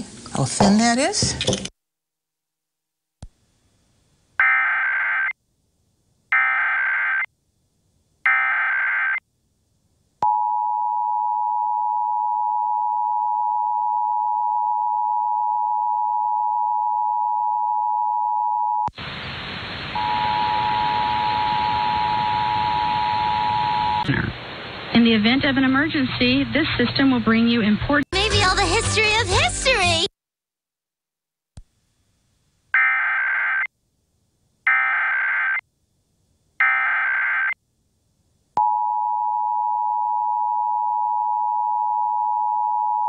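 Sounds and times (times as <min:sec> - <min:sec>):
loud hiss: 0:18.9 - 0:22.7
screeching data warble bursts: 0:32.8 - 0:33.7.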